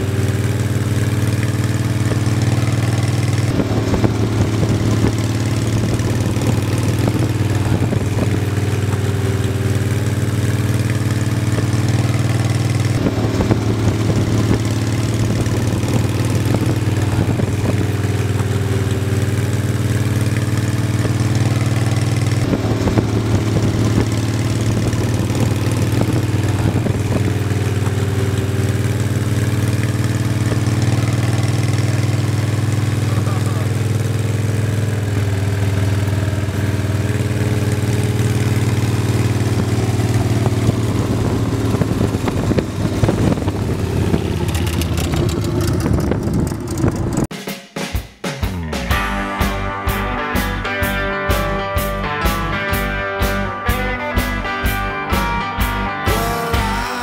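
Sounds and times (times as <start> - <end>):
loud low musical drone: 1.6 - 20.0, 22.4 - 31.4, 48.6 - 57.0.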